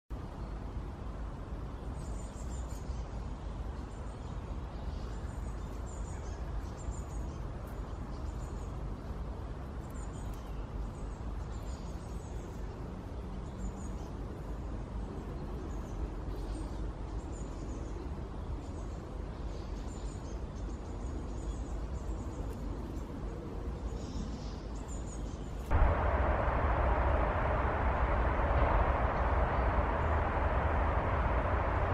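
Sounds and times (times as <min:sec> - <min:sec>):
loud rushing noise: 0:25.7 - 0:31.9
low rumble: 0:25.7 - 0:31.9.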